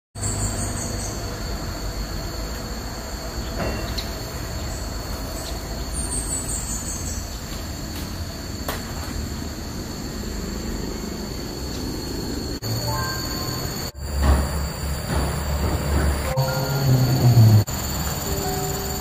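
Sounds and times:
insects droning: 0.2s - 19.0s
small bird chirping: 3.4s - 7.6s
low rumble: 13.7s - 18.2s.

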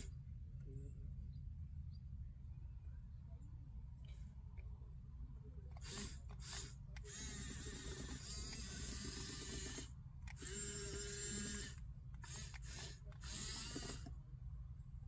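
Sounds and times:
toy bulldozer motors whirring: 5.7s - 14.2s.

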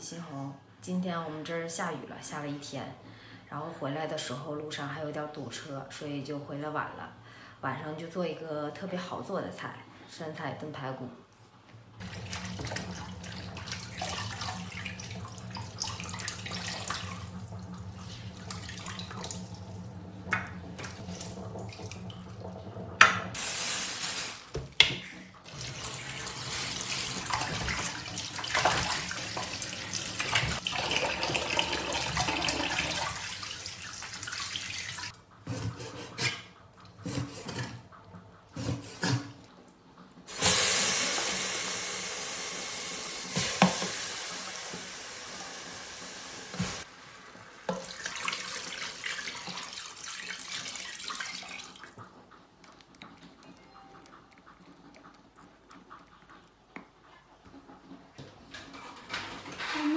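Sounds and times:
tap water running into sink: 12.0s - 35.2s, 40.3s - 52.2s
water pouring over ribs: 25.4s - 35.1s, 46.7s - 52.1s.

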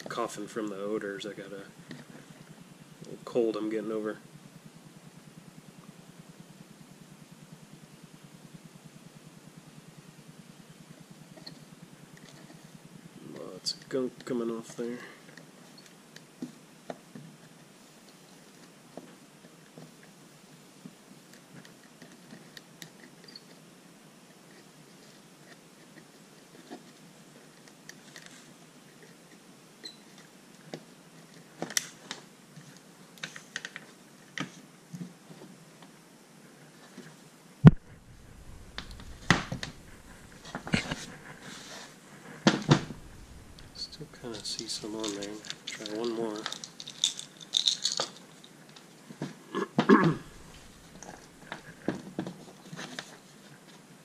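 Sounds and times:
man coughing: 49.6s - 50.4s.

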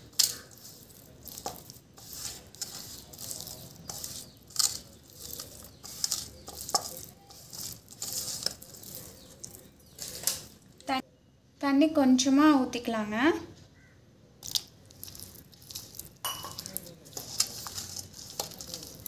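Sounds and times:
fingers scraping metal pan: 0.0s - 10.6s, 15.0s - 19.0s.

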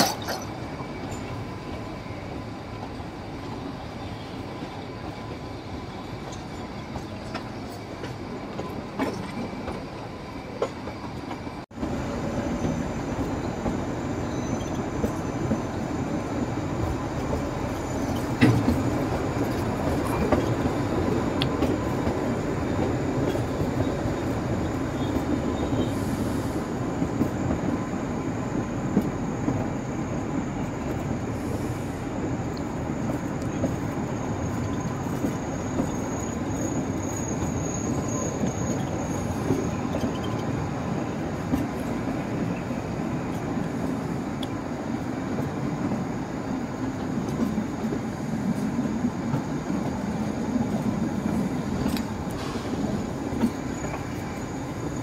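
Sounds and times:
train wheels on rails: 0.0s - 55.0s
wheel squeal: 34.5s - 40.6s.

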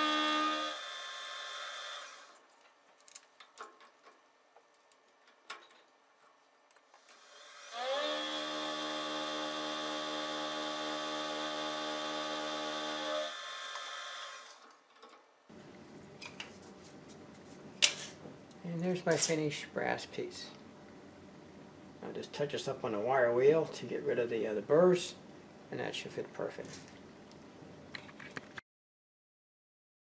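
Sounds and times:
milling machine motor whining: 0.0s - 2.4s, 7.1s - 14.6s.

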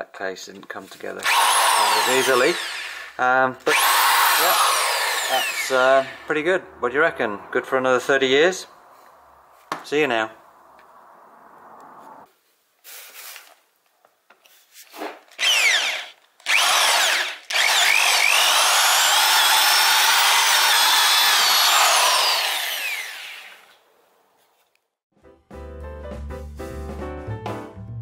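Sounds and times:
hammer drill drilling into wood: 1.2s - 6.3s, 15.4s - 23.8s.

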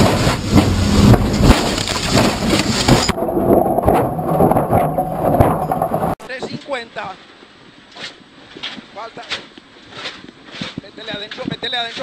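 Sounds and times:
steady hum: 2.9s - 6.2s.

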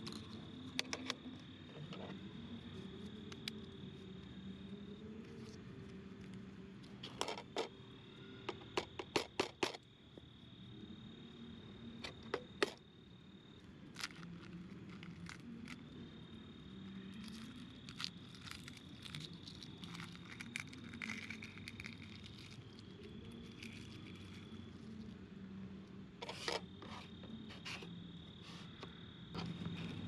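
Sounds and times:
high insect trill: 0.0s - 30.0s
eggshell crackling: 17.1s - 25.1s.

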